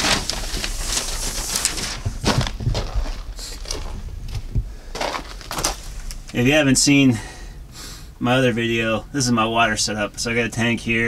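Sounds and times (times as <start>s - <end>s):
footsteps crunching in snow: 0.0s - 6.4s
rustling handling noise: 0.0s - 6.6s
low thuds: 0.0s - 6.7s.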